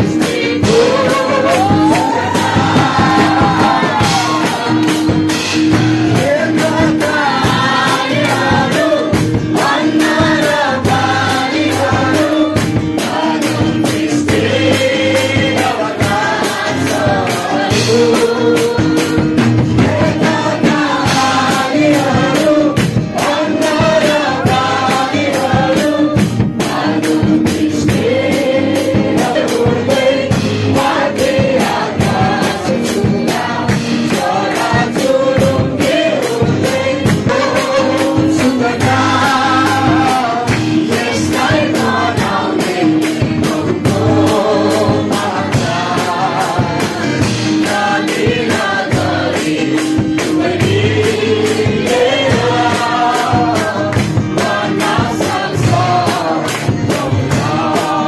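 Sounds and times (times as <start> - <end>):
group singing gospel song: 0.0 - 58.0
steady percussion beat: 0.0 - 58.0.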